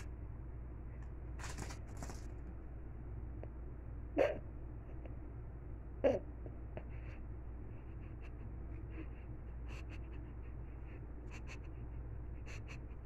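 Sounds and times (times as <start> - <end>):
low room hum: 0.0 - 13.0
cat claws clicking on carpet: 1.4 - 2.4.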